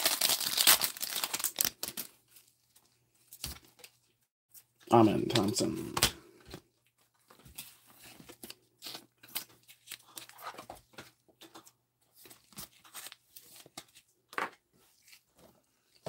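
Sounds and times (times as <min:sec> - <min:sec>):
rustling and crinkling packaging: 0:00.0 - 0:04.7.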